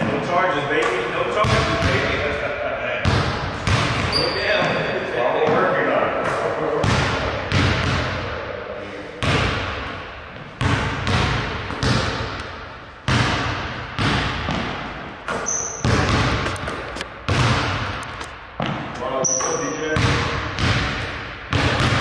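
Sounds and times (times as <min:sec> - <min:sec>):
basketball bouncing on wooden floor: 0:01.4 - 0:02.1, 0:03.0 - 0:04.8, 0:09.2 - 0:12.5, 0:13.1 - 0:22.0
short high squeak: 0:15.4 - 0:15.8.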